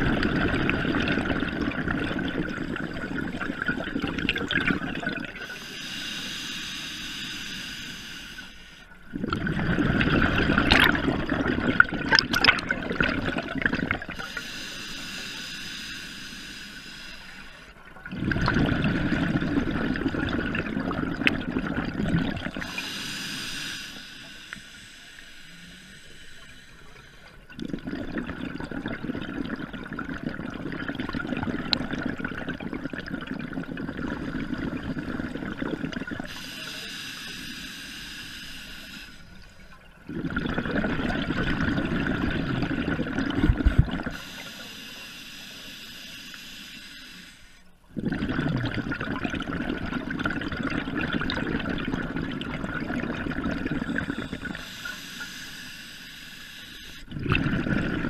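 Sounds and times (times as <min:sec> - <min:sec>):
bubbling exhale underwater: 0:00.0 - 0:05.6, 0:09.1 - 0:15.1, 0:18.0 - 0:23.1, 0:27.5 - 0:36.6, 0:39.8 - 0:44.5, 0:47.9 - 0:55.0, 0:57.0 - 0:58.0
regulator hissing inhale: 0:05.4 - 0:09.0, 0:14.1 - 0:17.8, 0:22.6 - 0:27.5, 0:36.2 - 0:39.8, 0:44.0 - 0:47.8, 0:53.8 - 0:57.1.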